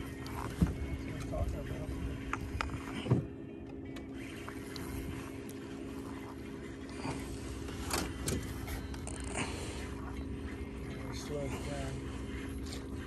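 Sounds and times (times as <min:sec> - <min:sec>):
low hum: 0:00.0 - 0:13.0
fishing reel being cranked: 0:04.0 - 0:10.2
water noise: 0:04.1 - 0:13.0.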